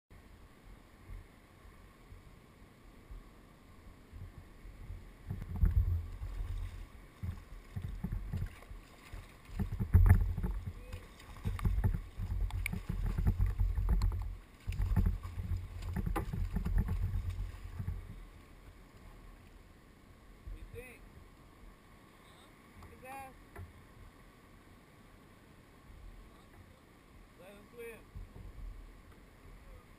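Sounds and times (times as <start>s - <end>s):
low bumps and sharp knocks: 4.2s - 8.8s, 9.5s - 18.2s
water splashing against kayak hull: 4.3s - 19.6s.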